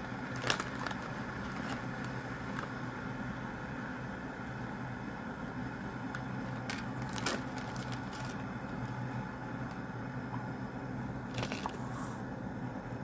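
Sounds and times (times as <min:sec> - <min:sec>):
steady low hum: 0:00.0 - 0:13.0
plastic and paper packets crinkling: 0:00.1 - 0:02.8, 0:06.6 - 0:08.4, 0:11.3 - 0:11.8.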